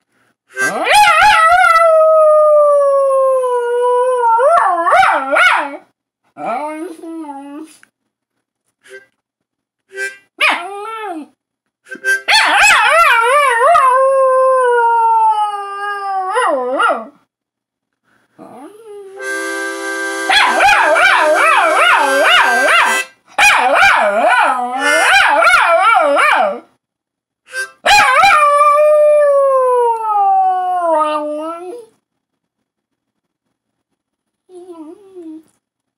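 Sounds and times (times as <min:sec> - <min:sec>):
harmonica chords: 0:08.8 - 0:09.1, 0:09.9 - 0:10.3, 0:11.9 - 0:12.3, 0:19.2 - 0:23.2, 0:24.8 - 0:25.1, 0:27.5 - 0:27.8
dog howling: 0:20.3 - 0:23.0.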